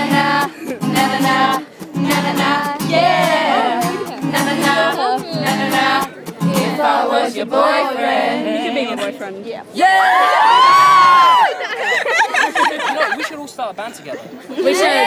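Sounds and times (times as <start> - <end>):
strummed acoustic guitar: 0.0 - 7.0
crowd singing along: 0.0 - 10.0, 14.6 - 15.0.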